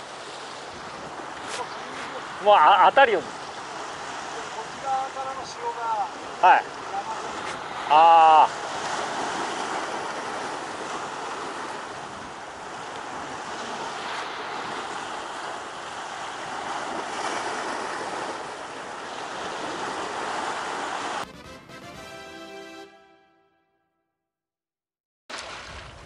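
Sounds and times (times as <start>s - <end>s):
waves breaking on rocky shore: 0.0s - 21.2s.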